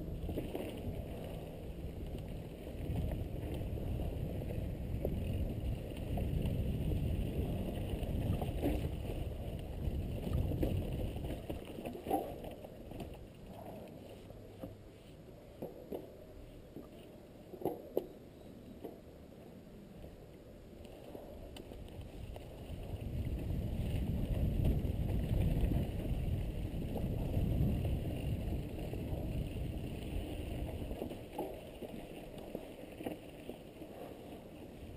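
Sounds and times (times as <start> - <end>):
bike tyres rumbling on dirt: 0.0 - 13.8, 22.0 - 32.5
wind on microphone: 0.0 - 13.9, 21.1 - 32.6.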